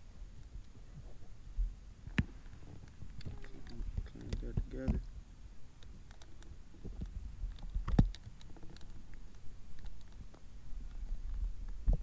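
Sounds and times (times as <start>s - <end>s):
small parts clicking and tapping: 2.1s - 5.1s, 5.8s - 12.0s.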